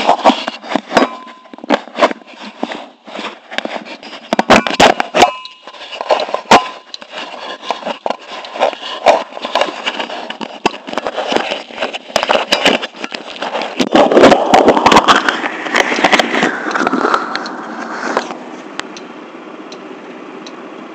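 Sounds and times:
fingers rubbing on microphone: 5.8 - 18.4
rising whine: 13.8 - 20.9.

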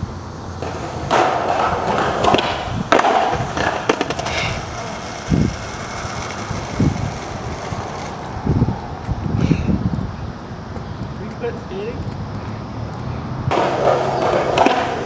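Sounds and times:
skateboard wheels rolling on concrete: 0.0 - 15.0
skater falling slam: 0.6 - 8.6, 13.5 - 15.0
skateboard clattering: 0.6 - 9.2, 13.5 - 15.0.

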